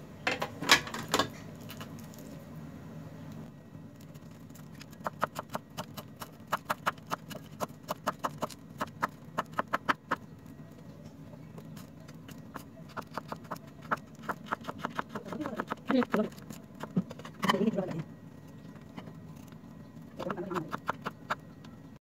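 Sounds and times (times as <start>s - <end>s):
knife chopping on wooden board: 5.0s - 10.2s, 12.9s - 17.0s.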